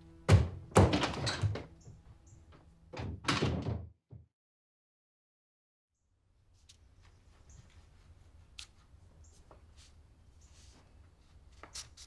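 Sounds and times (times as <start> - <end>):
door banging: 0.3 - 4.3
door knocks and rattles: 0.3 - 4.3.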